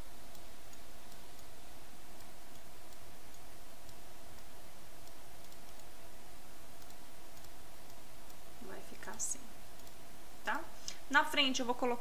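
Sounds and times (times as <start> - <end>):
steady background hiss: 0.0 - 12.0
faint computer mouse clicks: 2.2 - 5.9, 6.8 - 8.4.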